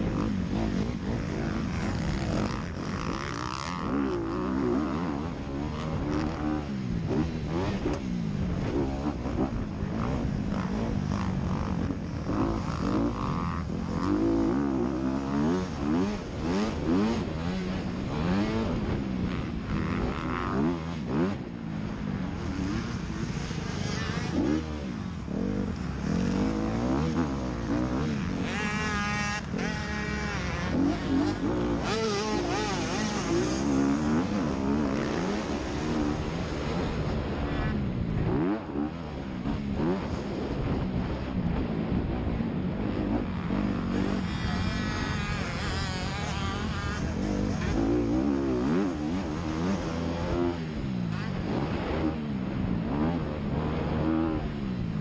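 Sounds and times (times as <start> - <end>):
motorcycle engine revving: 0.0 - 55.0
wind noise on microphone: 26.6 - 55.0.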